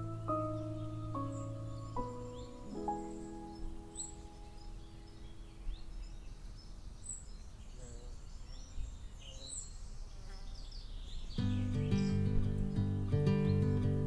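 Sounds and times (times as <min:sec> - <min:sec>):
plucked guitar music: 0:00.0 - 0:05.2, 0:11.4 - 0:14.0
background music: 0:00.0 - 0:05.3
small birds chirping: 0:00.0 - 0:14.0.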